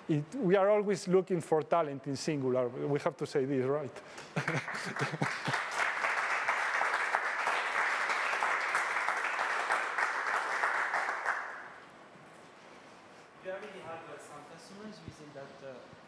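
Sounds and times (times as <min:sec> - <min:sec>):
audience applauding: 0:04.4 - 0:11.8.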